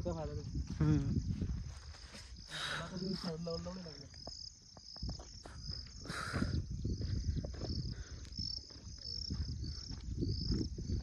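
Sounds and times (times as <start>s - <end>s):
insects chirping: 0.0s - 11.0s.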